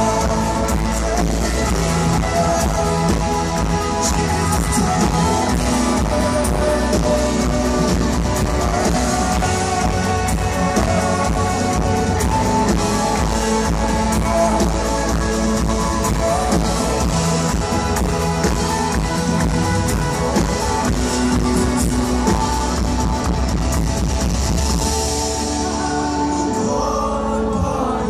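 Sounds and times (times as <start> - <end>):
electric guitar: 0.0 - 28.0
live band playing loud music: 0.0 - 28.0.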